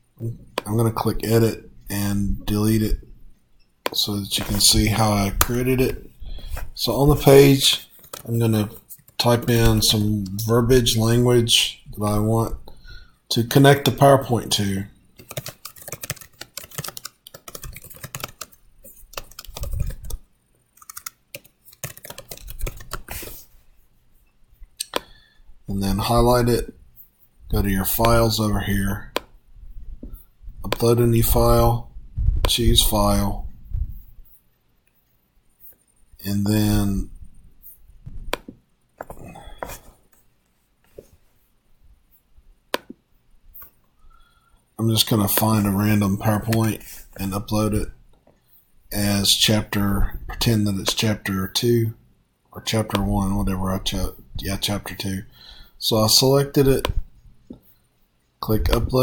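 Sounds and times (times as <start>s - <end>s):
faint handling noise: 2.3s - 10.4s, 32.4s - 44.0s
rapid keyboard typing: 7.0s - 9.9s, 15.2s - 23.4s
computer mouse clicking: 8.0s - 8.3s, 15.2s - 20.2s, 20.8s - 23.3s
dull low thump: 32.0s - 32.5s.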